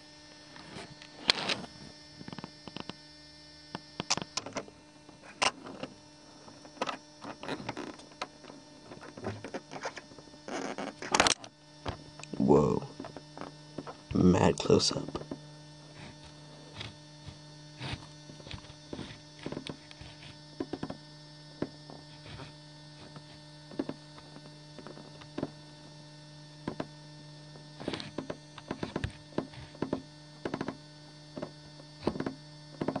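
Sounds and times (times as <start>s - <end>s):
low electrical hum: 0.0s - 33.0s
small clicks and taps: 27.8s - 30.8s, 31.4s - 33.0s.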